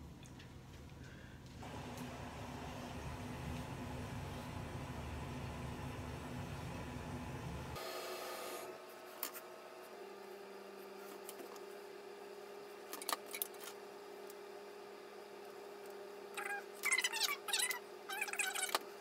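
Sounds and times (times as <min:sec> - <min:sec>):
low steady hum: 0:00.0 - 0:07.8.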